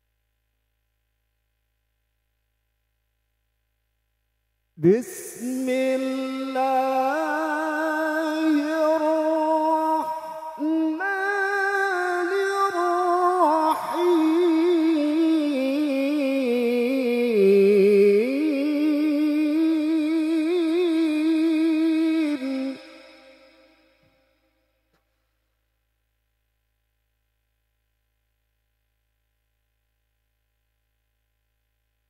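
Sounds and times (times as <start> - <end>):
man chanting into a microphone: 4.8 - 23.5.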